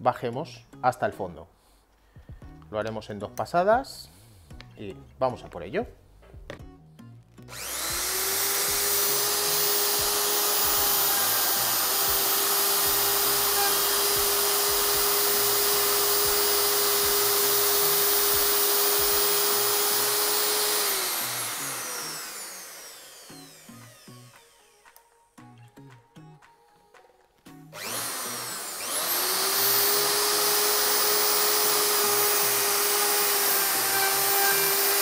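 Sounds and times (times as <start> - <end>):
router whining while cutting wood: 7.5 - 25.0, 27.8 - 35.0.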